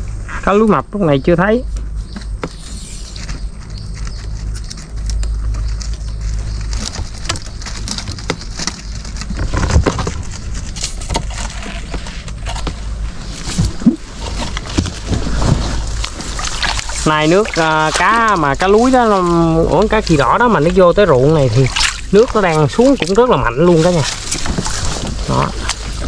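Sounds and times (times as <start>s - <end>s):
steady low rumble: 0.0s - 26.0s
water splashing: 13.5s - 26.0s.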